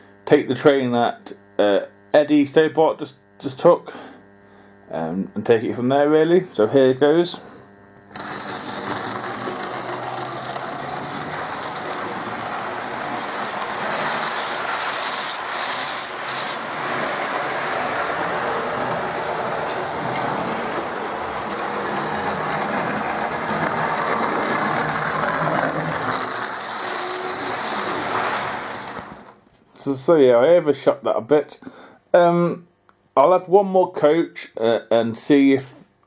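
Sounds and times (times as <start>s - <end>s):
model train running on track: 8.1s - 29.3s.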